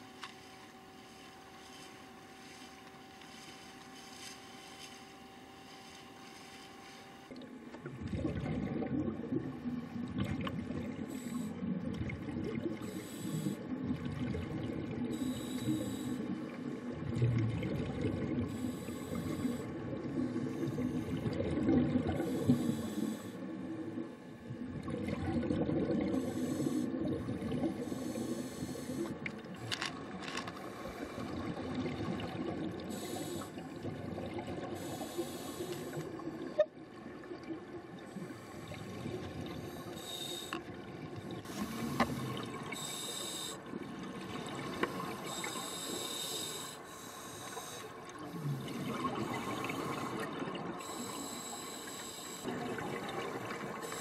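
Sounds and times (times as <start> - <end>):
regulator breathing hiss: 0.0 - 7.3, 11.1 - 11.6, 12.8 - 13.7, 15.1 - 16.3, 18.5 - 21.2, 22.2 - 23.5, 26.2 - 27.0, 27.7 - 29.9, 32.9 - 33.7, 34.8 - 36.2, 39.6 - 40.6, 41.4 - 43.7, 44.8 - 52.5, 53.7 - 54.0
exhaled bubbles bursting: 7.8 - 11.0, 16.9 - 18.5, 21.1 - 22.3, 24.6 - 27.9, 48.3 - 50.8
low bubbling rumble: 7.8 - 11.0, 24.5 - 26.2.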